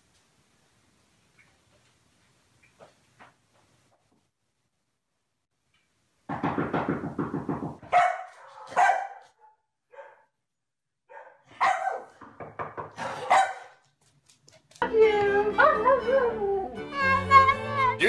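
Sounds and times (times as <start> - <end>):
dog barking: 7.8 - 10.4, 11.1 - 12.2, 13.0 - 13.8.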